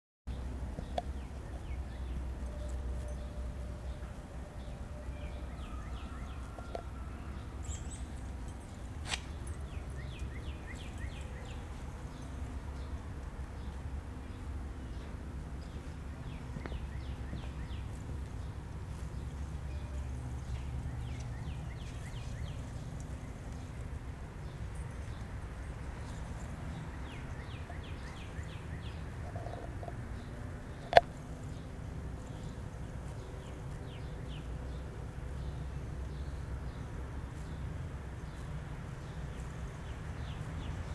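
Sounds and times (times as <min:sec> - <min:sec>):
bird chirping: 0:00.3 - 0:34.9.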